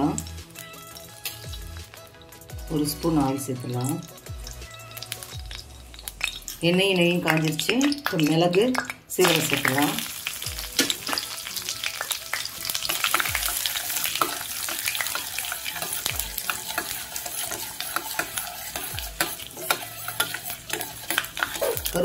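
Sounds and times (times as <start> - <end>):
spices sizzling in hot oil: 0.0 - 22.0
spoon stirring in pan: 12.0 - 22.0.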